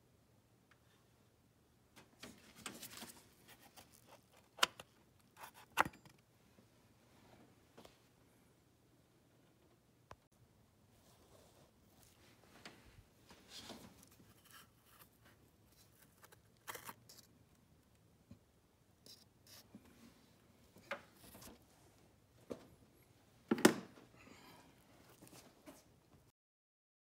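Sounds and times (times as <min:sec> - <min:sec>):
faint handling rustles and clicks: 0:01.9 - 0:06.2, 0:11.0 - 0:18.0.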